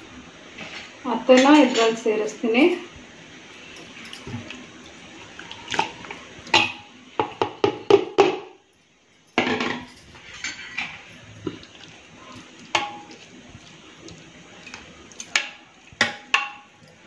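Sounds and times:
spoon knocking and scraping pot: 12.7s - 13.3s.

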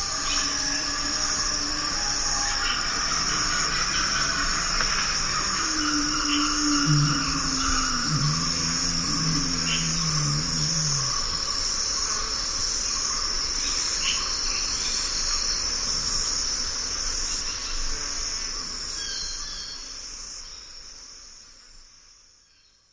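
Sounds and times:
low droning tone: 0.0s - 12.2s
insects chorus: 0.0s - 22.7s.

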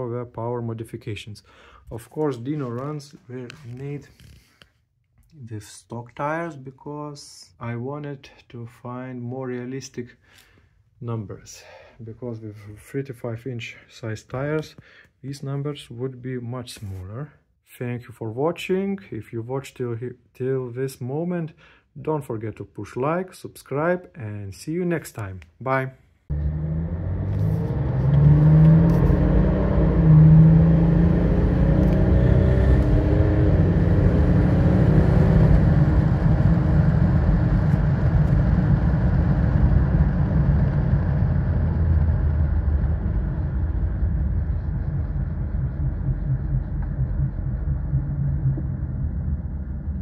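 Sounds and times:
diesel engine accelerating: 26.3s - 50.0s.

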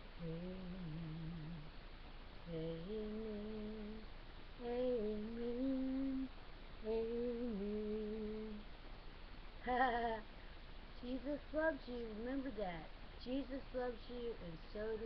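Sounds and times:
woman humming a slow tune: 0.0s - 1.7s, 2.4s - 8.6s.

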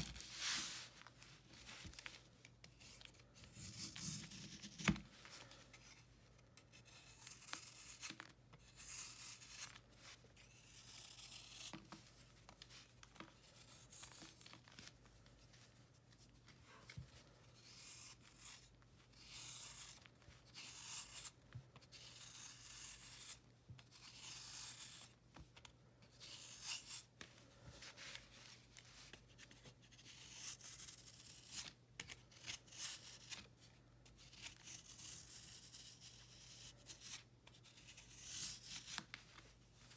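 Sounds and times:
utility knife scraping chalky block: 6.6s - 9.8s, 10.4s - 11.7s, 17.6s - 25.1s, 26.2s - 27.1s, 34.2s - 39.0s.

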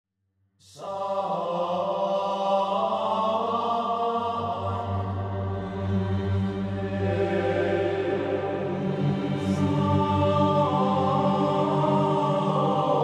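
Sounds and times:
droning choral chant: 0.6s - 13.0s.

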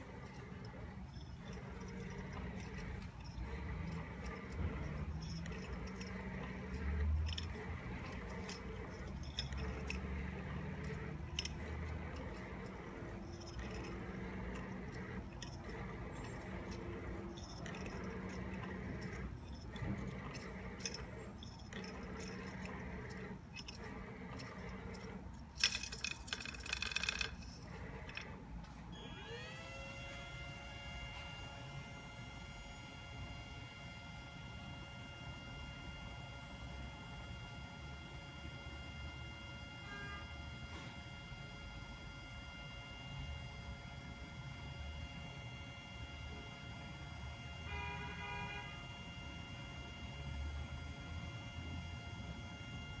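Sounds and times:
machine rattle: 0.0s - 28.6s
motor whine spinning up: 0.0s - 53.0s
motors whirring and clicking: 0.0s - 53.0s.

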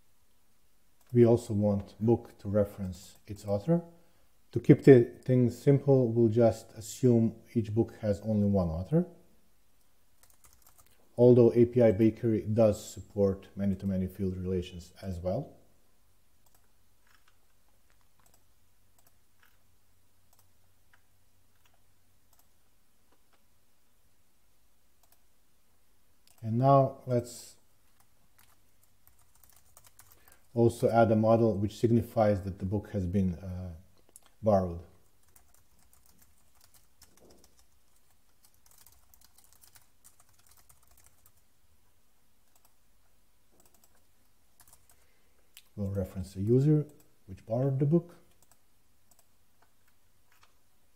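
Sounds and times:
faint keyboard typing: 0.9s - 3.6s, 9.8s - 12.1s, 16.3s - 23.5s, 24.9s - 25.4s, 26.2s - 26.5s, 27.8s - 30.9s, 33.9s - 47.6s, 48.2s - 50.7s
computer mouse clicks: 16.4s - 19.6s, 20.3s - 23.4s, 25.0s - 25.2s, 34.0s - 34.4s, 42.4s - 42.8s, 43.5s - 45.7s, 48.3s - 50.6s.

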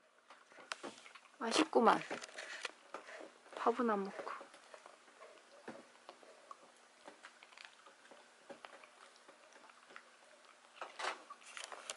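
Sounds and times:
dog gnawing a hard chew: 4.7s - 11.9s.

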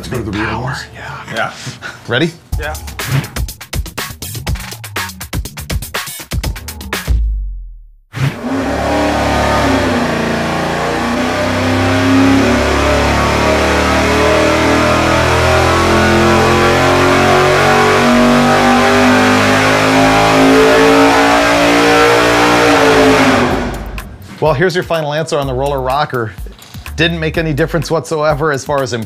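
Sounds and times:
engine revving at full throttle: 8.2s - 24.2s.

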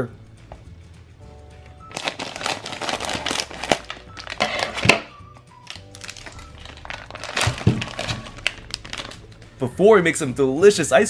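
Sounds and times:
background music: 0.0s - 11.0s
plastic bag crinkling: 1.9s - 9.4s.

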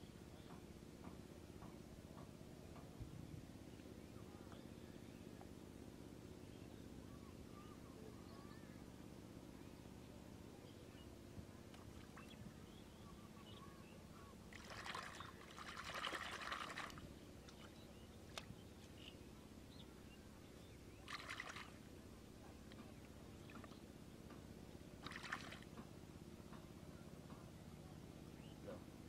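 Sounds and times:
hand sloshing in muddy puddle: 14.5s - 17.7s, 21.0s - 21.8s, 25.0s - 25.7s
water splashing and trickling: 14.5s - 18.5s, 21.0s - 21.8s, 25.0s - 25.8s.

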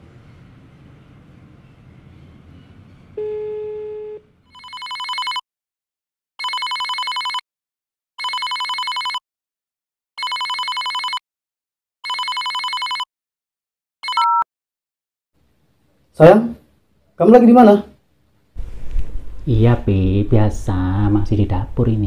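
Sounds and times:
plain telephone tone: 3.2s - 5.4s, 6.4s - 7.4s, 8.2s - 9.2s, 10.2s - 11.2s, 12.0s - 13.1s, 14.0s - 14.5s
warbling telephone ringing: 3.2s - 5.4s, 6.4s - 7.4s, 8.2s - 9.2s, 10.2s - 11.2s, 12.0s - 13.1s.

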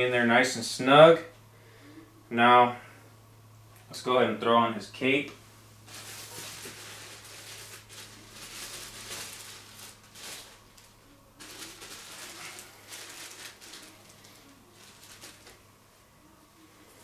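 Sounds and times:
packaging rustling and crinkling: 5.8s - 15.6s.

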